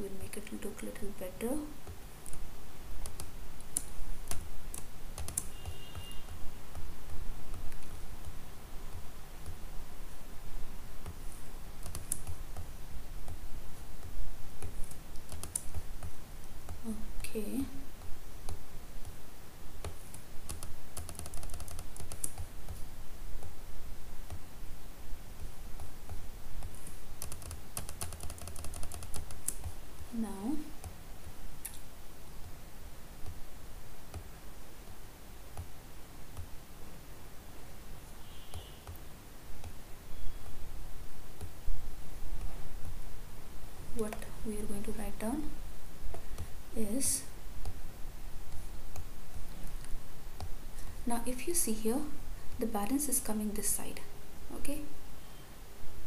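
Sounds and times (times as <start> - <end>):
computer keyboard and mouse clicking: 3.0 - 9.6, 11.8 - 13.4, 14.0 - 16.8, 19.8 - 22.8, 25.4 - 30.1, 38.5 - 39.0, 39.6 - 39.8
mouse and keyboard clicks: 11.8 - 12.7, 19.8 - 22.8, 25.4 - 29.8.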